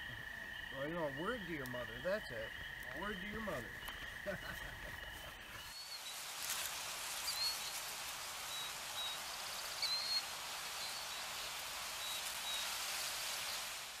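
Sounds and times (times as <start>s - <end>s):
night ambience hiss: 0.0s - 14.0s.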